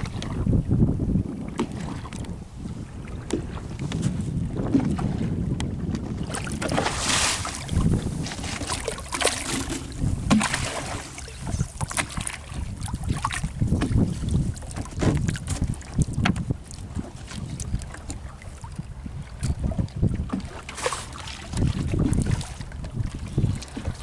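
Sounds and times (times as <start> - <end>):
wind buffeting microphone: 0.0 - 24.0
water splashing: 6.2 - 18.4
knocks against wooden boat: 13.7 - 14.0, 14.7 - 16.5.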